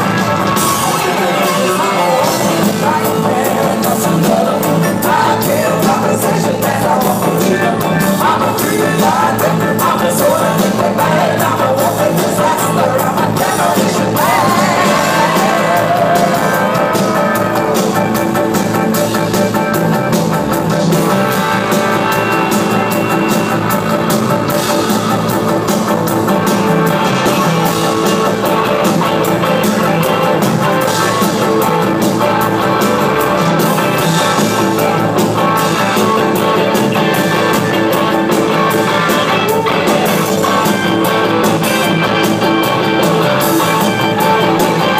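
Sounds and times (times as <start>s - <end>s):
live rock band playing: 0.0s - 44.9s
woman singing: 8.3s - 17.4s.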